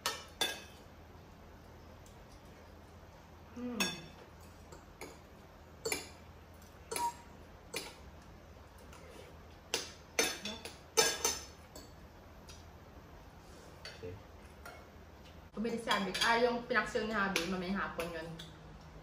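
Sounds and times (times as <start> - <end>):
cutlery clinking on plates: 9.7 - 12.0.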